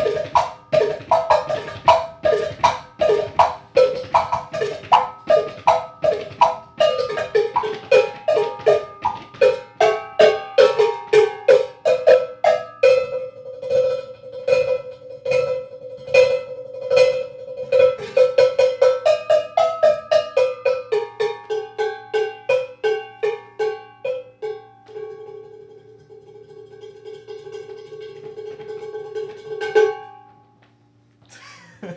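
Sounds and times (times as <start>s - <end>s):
cowbells struck in rhythmic patterns: 0.0s - 30.2s.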